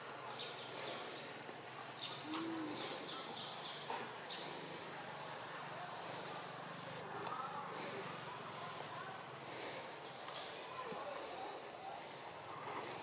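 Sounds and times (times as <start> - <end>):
background hiss: 0.0 - 13.0.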